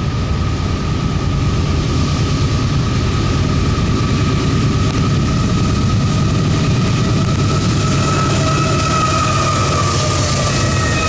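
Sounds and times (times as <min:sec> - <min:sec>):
locomotive low rumble: 0:00.0 - 0:11.0
thin steady whine: 0:00.0 - 0:11.0.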